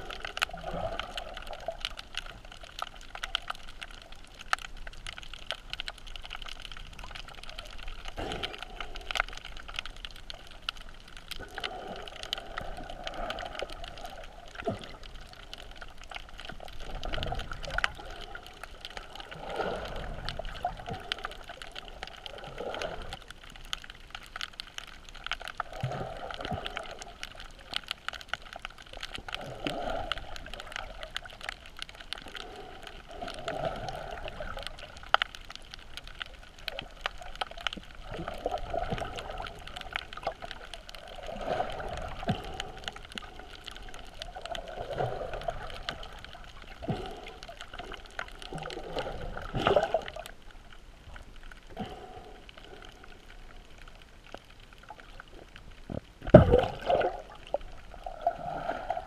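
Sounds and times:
small clicks and crackles: 0.0s - 59.0s
underwater water rushing: 0.0s - 59.0s
underwater thump: 56.2s - 57.0s.

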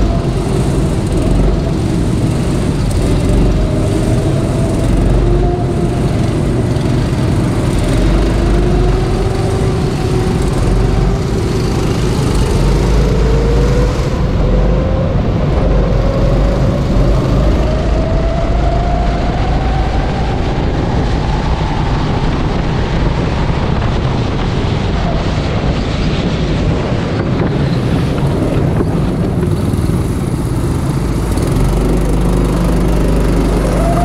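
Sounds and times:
go-kart engine revving: 0.0s - 18.2s, 27.7s - 34.0s
wind rush on microphone: 0.0s - 34.0s.

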